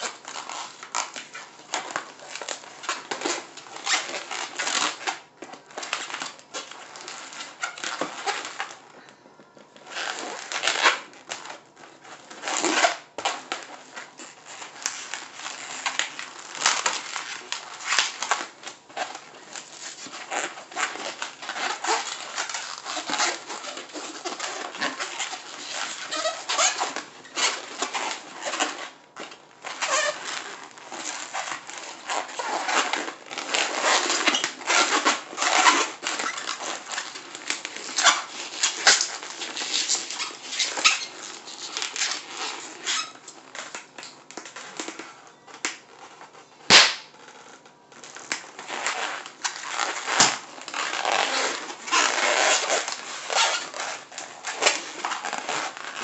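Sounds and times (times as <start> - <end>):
balloons squeaking and rubbing: 0.0 - 9.0, 9.6 - 56.0
balloon snapping: 46.7 - 47.1.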